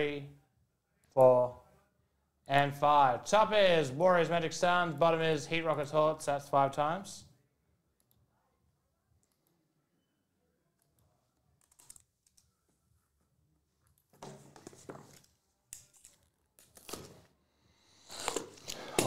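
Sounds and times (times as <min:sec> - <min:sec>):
plastic wrap being cut and torn: 0:15.8 - 0:17.3, 0:18.1 - 0:19.0.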